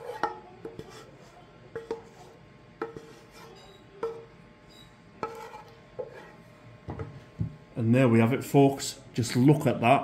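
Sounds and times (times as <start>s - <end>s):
pan scraping ceramic bowl: 0.0s - 6.4s.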